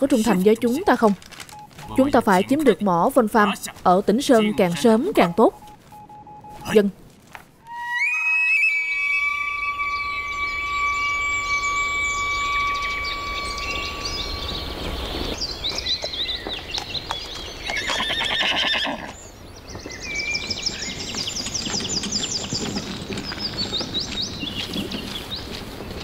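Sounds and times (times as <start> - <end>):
birds chirping and trilling: 0.0 - 5.6, 7.7 - 26.0
pulsed rasping animal call: 7.7 - 14.7
steady high tones: 7.7 - 15.4.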